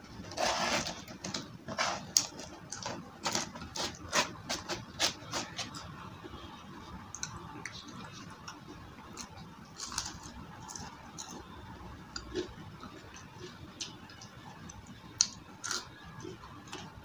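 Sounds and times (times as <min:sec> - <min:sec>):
chewing crunchy food: 0:07.1 - 0:11.5, 0:12.1 - 0:17.0.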